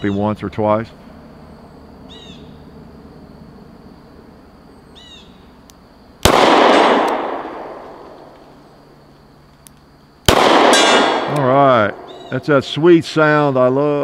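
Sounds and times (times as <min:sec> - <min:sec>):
gunshot echo: 0:06.2 - 0:08.3, 0:10.3 - 0:12.4
revolver gunshot: 0:06.2 - 0:08.3, 0:10.3 - 0:12.3.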